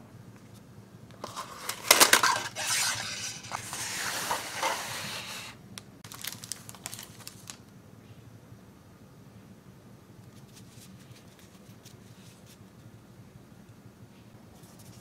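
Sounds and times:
plastic packaging crackling: 0:01.2 - 0:05.1, 0:06.0 - 0:07.7
packaging rustling: 0:01.2 - 0:07.6.

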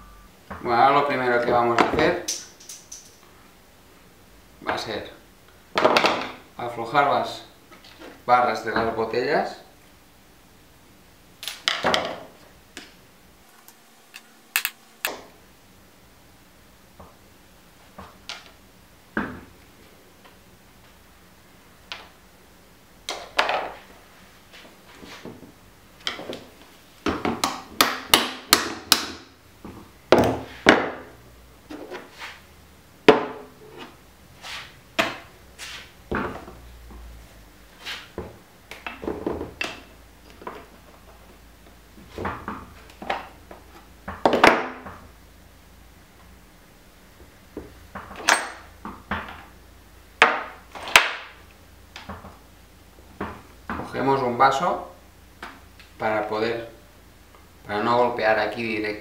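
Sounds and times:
tools and metal parts clinking: 0:02.3 - 0:03.2, 0:14.1 - 0:14.8.

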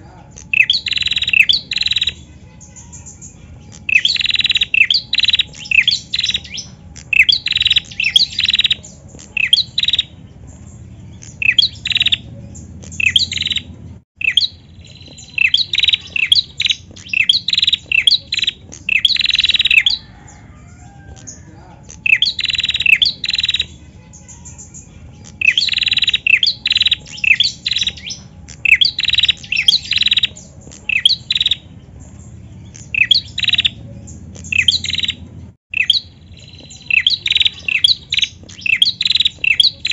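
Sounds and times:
bird chirping sharply: 0:00.4 - 0:39.9.

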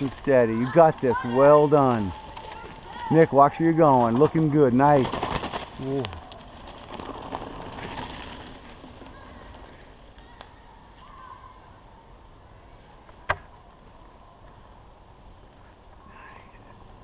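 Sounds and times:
bike tyres crunching on gravel: 0:00.0 - 0:11.7.

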